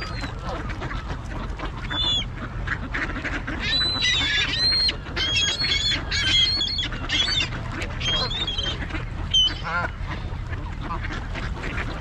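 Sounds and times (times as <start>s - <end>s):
ducks and geese calling: 0.0s - 12.0s.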